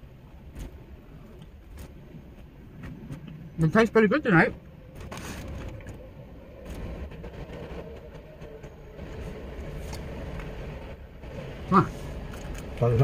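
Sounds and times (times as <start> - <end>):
truck engine rumbling: 0.0 - 13.0.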